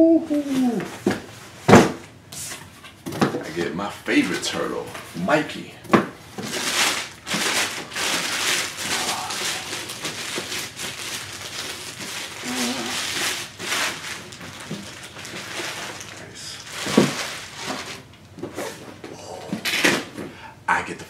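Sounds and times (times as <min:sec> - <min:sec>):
plastic shrink wrap crinkling: 0:06.4 - 0:18.2.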